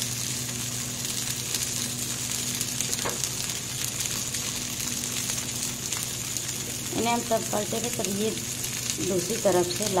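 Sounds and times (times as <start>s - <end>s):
oil sizzling in a pan: 0.0s - 10.0s.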